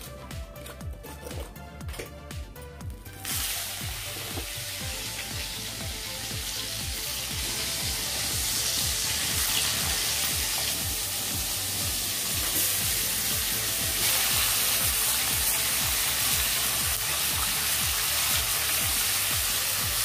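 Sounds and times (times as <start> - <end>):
fish sizzling in hot oil: 3.2 - 20.0.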